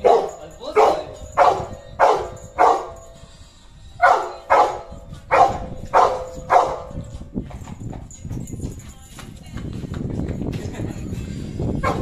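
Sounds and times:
puppy barking: 0.0s - 3.0s, 4.0s - 7.0s.

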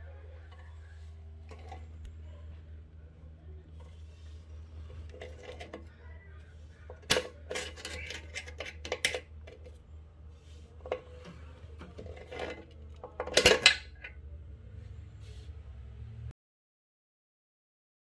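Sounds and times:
steady low hum: 0.0s - 16.3s
clinks and clatters of hard objects: 1.4s - 2.0s, 4.8s - 5.9s, 6.9s - 9.8s, 10.8s - 14.2s.

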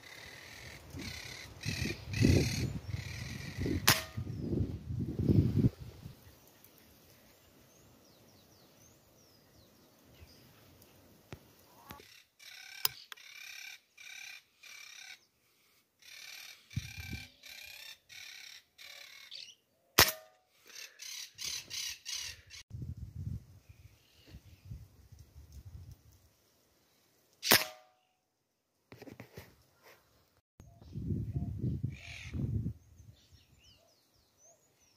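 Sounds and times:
air rifle shot: 3.8s - 4.4s, 20.0s - 20.3s, 27.4s - 27.9s.

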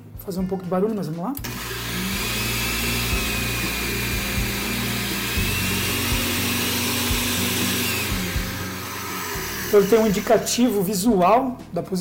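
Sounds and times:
blender motor whirring: 1.4s - 10.7s.

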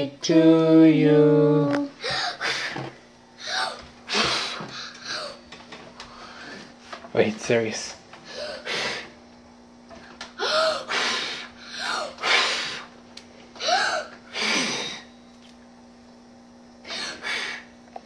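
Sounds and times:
faint steady hum: 0.0s - 18.0s
child gasping breath: 2.0s - 2.8s, 8.3s - 9.1s, 10.4s - 12.9s.

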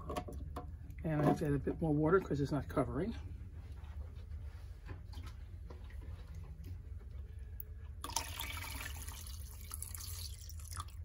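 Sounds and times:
steady low hum: 0.0s - 11.0s
water pouring into tank: 8.0s - 11.0s.

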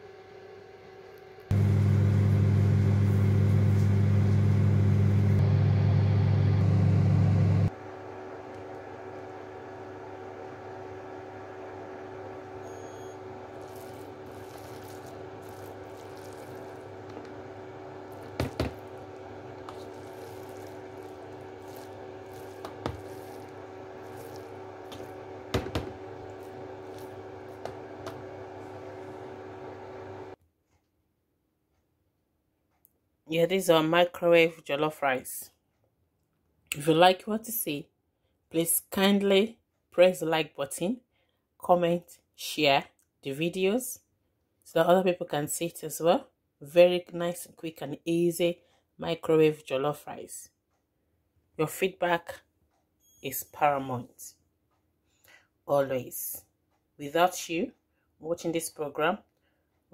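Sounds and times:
microwave oven humming: 0.0s - 30.4s
metal spoon scraping plastic bowl: 13.6s - 17.3s, 19.6s - 25.1s.

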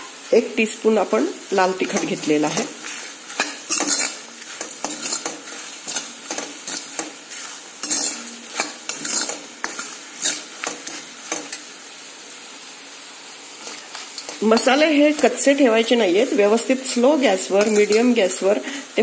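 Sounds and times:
oil sizzling: 0.0s - 19.0s
spoon scraping metal pan: 1.7s - 11.7s, 13.6s - 18.4s.

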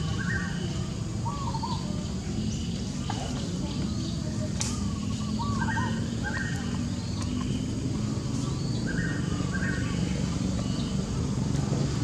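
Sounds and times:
birds chirping: 0.0s - 11.4s.

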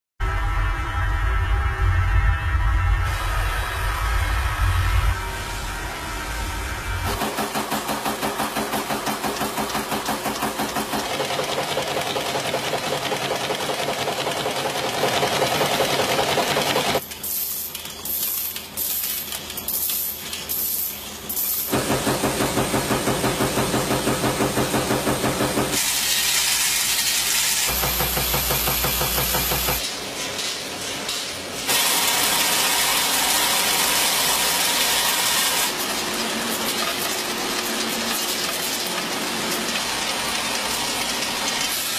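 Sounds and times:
machine running: 0.2s - 17.1s, 21.2s - 29.9s
hissing air bursts: 17.0s - 29.8s.

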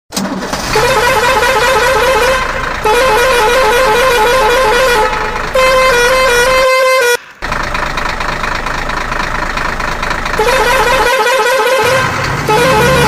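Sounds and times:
musical vehicle horn tune: 0.5s - 7.4s, 10.3s - 13.0s.

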